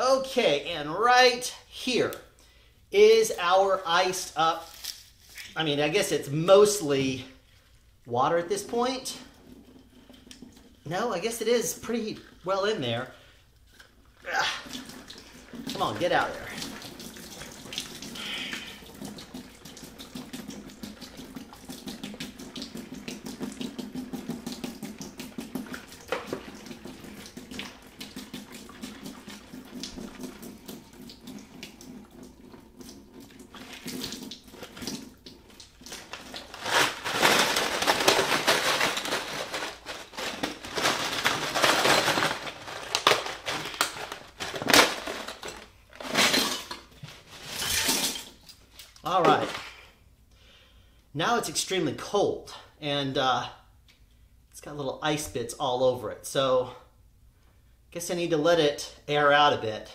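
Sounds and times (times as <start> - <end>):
faucet water splashing into a sink: 14.4 - 36.5.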